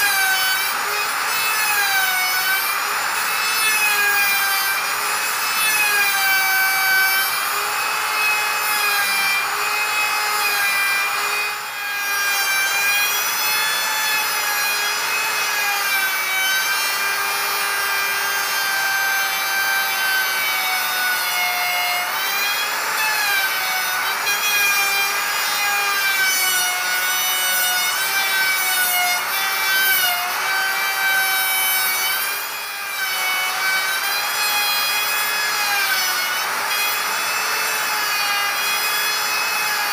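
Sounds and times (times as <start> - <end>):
electric router motor whine: 0.0 - 39.9
router bit rasping wood: 0.0 - 39.9.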